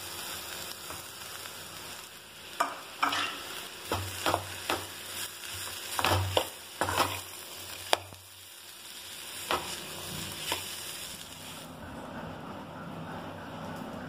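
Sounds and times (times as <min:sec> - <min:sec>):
frying sizzle: 0:00.0 - 0:11.7
spoon scraping metal pan: 0:02.6 - 0:03.4.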